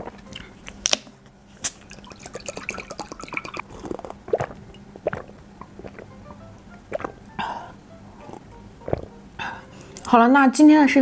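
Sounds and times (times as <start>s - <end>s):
wet sips and swallows: 1.6s - 6.2s, 6.8s - 10.1s.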